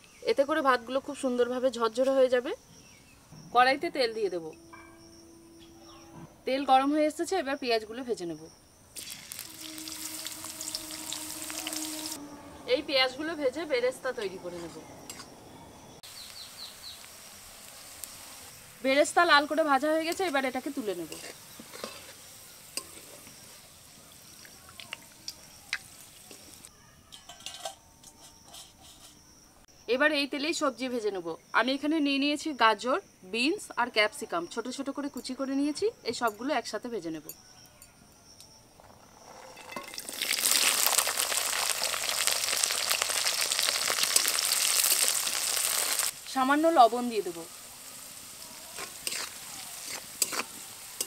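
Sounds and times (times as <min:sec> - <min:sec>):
hot oil sizzling: 0:08.8 - 0:27.6, 0:38.8 - 0:51.0.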